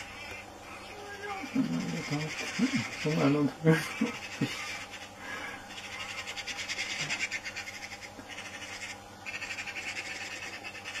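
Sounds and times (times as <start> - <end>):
magpie chattering rattle: 0.0 - 11.0.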